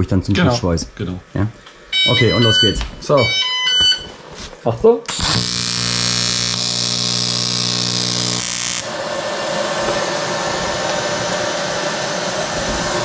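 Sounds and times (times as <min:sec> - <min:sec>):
steady hiss: 0:05.1 - 0:13.0
welding arc buzzing: 0:05.1 - 0:13.0.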